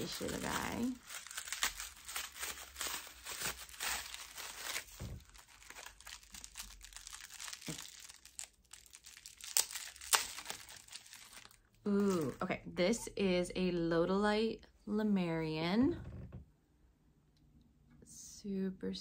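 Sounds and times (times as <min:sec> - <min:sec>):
paper wrap crinkling and tearing: 0:00.0 - 0:12.4.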